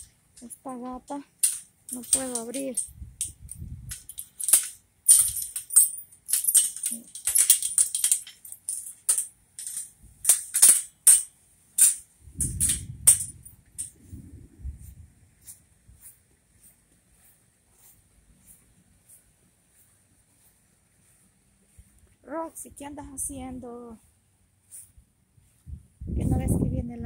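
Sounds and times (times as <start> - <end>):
metal gate latch rattling: 1.4 - 13.9.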